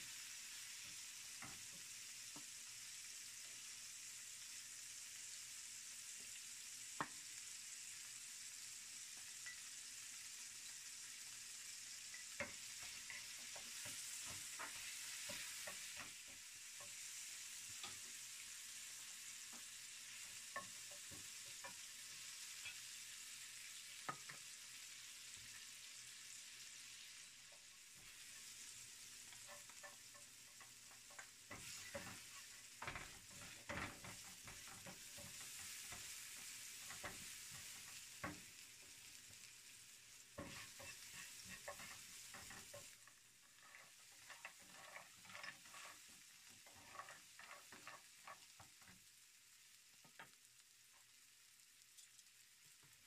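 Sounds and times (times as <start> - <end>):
food sizzling in oil: 0.0 - 53.0
wooden spatula scraping a pan: 12.1 - 22.9, 27.5 - 39.0, 40.4 - 49.0.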